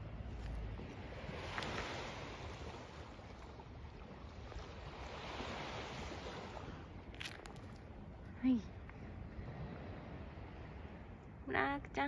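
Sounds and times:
sea waves washing: 0.0s - 8.5s
wind: 0.0s - 12.0s.

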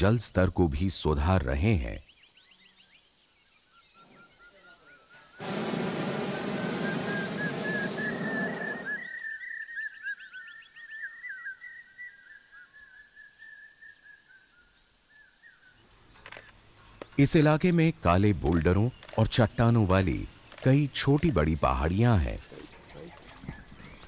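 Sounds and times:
birds chirping: 2.1s - 12.7s, 16.7s - 24.0s
propane burner blast: 5.4s - 9.1s.

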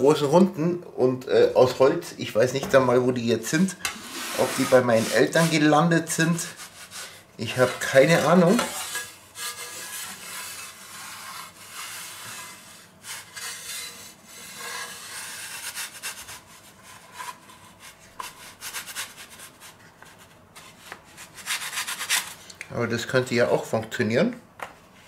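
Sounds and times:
metal pizza peels scraping on wood: 3.8s - 5.7s, 6.3s - 17.6s.

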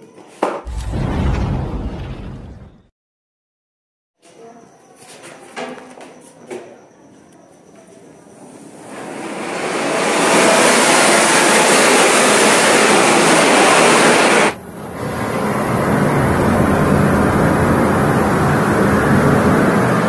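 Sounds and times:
fireworks hissing sparks: 9.9s - 14.6s.

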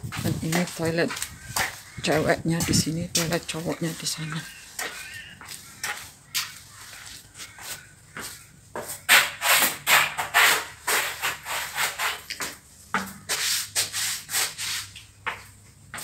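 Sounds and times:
footsteps scuffing on tiled floor: 0.0s - 9.8s, 10.6s - 16.0s.

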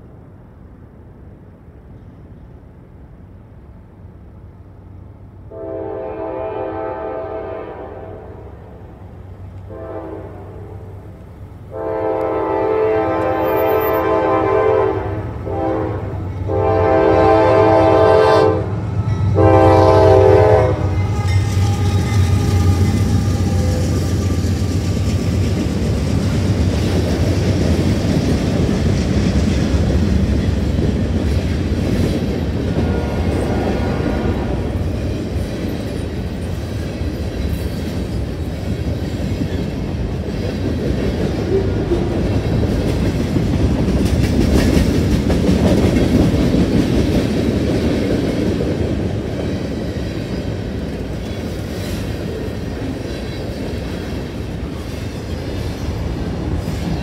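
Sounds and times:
diesel locomotive rumble: 0.0s - 57.0s
train cars rolling on rails: 0.0s - 57.0s
locomotive air horn blasts: 5.5s - 8.6s, 9.7s - 10.9s, 11.7s - 24.4s, 32.8s - 34.6s.

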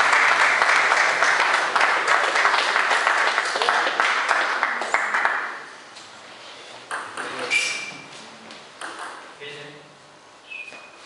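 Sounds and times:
crowd applauding: 0.0s - 5.7s.

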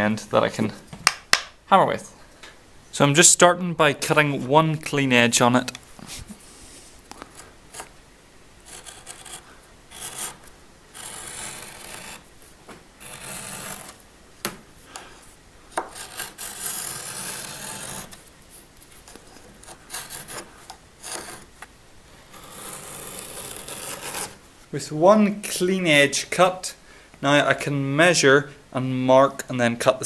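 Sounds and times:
knife rasping through leather: 8.6s - 12.2s, 13.0s - 14.0s, 15.9s - 18.2s.

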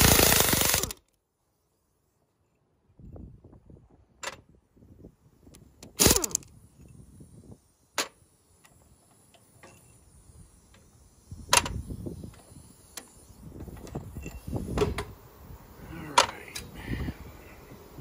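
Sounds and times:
low rumbling handling noise: 8.1s - 16.7s.

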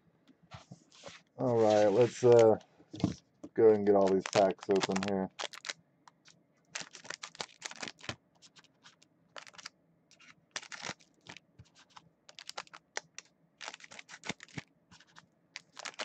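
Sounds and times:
foil wrapper crinkling: 3.7s - 16.0s.

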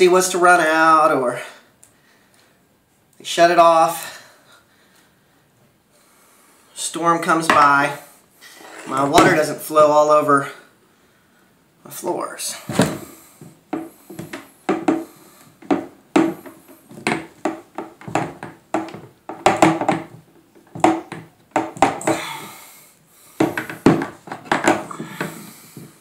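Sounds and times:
plastic fittings knocking on wood: 13.7s - 15.0s, 15.6s - 22.2s, 23.4s - 25.9s.

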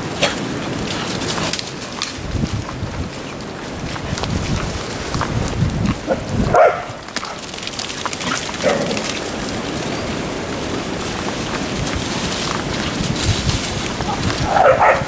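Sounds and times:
footsteps on muddy track: 0.0s - 15.0s
dog barking: 6.1s - 7.0s, 8.6s - 9.0s, 14.0s - 15.0s.

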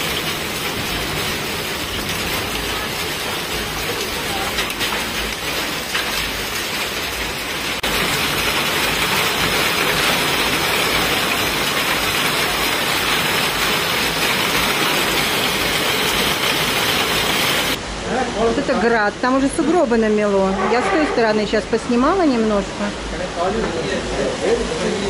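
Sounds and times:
heavy hail and rain: 0.0s - 17.8s.

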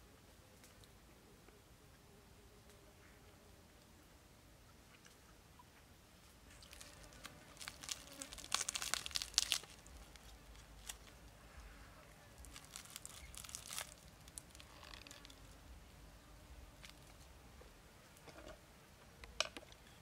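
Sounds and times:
crisp fish skin crackling: 6.6s - 11.4s, 12.3s - 15.6s.

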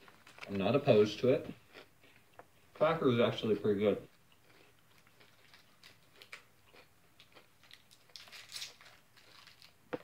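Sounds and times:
quiet chewing: 1.4s - 3.0s, 4.0s - 10.0s
plastic wrapper crinkling: 7.6s - 10.0s.

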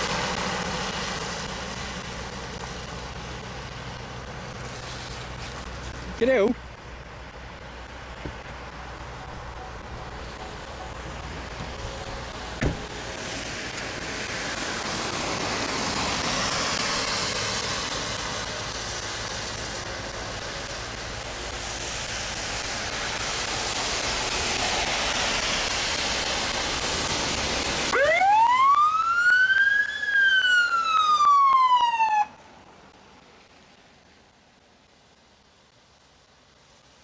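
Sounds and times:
traffic hiss on wet road: 0.0s - 37.0s
police siren wail: 27.8s - 32.4s.

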